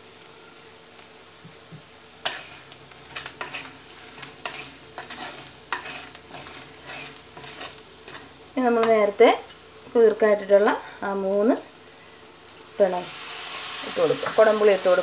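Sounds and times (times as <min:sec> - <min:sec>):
low frying sizzle: 0:00.0 - 0:15.0
wooden spatula scraping pot: 0:02.2 - 0:09.1.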